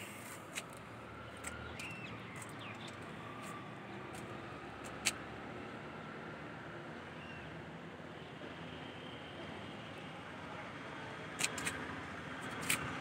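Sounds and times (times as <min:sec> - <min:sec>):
outdoor background noise: 0:00.0 - 0:13.0
scattered clicks: 0:11.4 - 0:11.8, 0:12.4 - 0:12.9.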